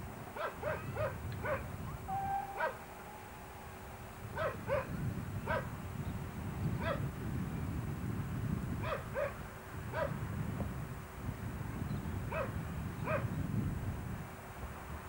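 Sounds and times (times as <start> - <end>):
low background rumble: 0.0 - 15.0
dog barking: 0.4 - 1.7, 2.5 - 2.8, 4.4 - 5.7, 6.8 - 7.0, 8.8 - 9.4, 10.0 - 10.2, 12.3 - 12.5.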